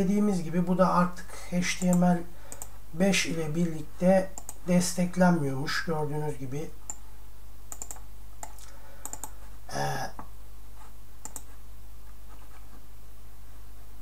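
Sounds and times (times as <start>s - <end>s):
steady low hum: 0.0s - 14.0s
computer mouse clicks: 1.8s - 2.8s, 4.4s - 4.6s, 7.7s - 9.4s, 11.2s - 11.5s.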